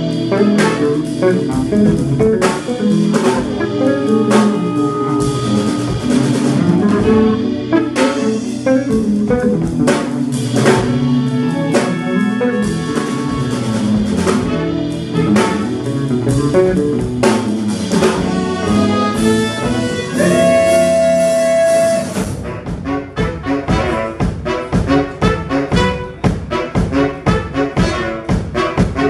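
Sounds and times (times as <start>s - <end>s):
drum kit beat: 0.0s - 29.0s
electric bass: 0.0s - 29.0s
held high note: 3.0s - 8.6s, 18.6s - 22.4s.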